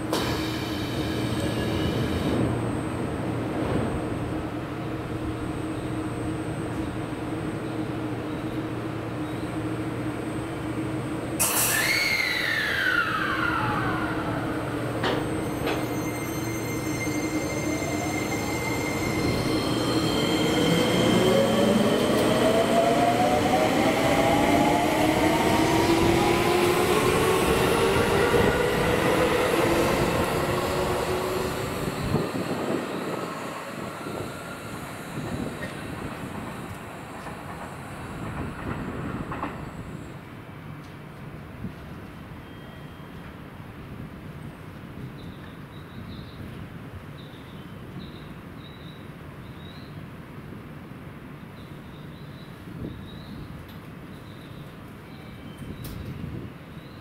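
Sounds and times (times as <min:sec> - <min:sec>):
train running noise: 0:00.0 - 0:42.3
train motors whining: 0:10.1 - 0:39.9.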